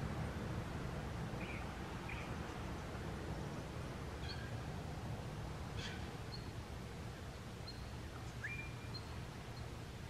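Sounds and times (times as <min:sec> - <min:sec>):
distant bird chirps: 0:01.4 - 0:02.6, 0:04.2 - 0:04.7, 0:05.7 - 0:06.6, 0:07.6 - 0:09.8.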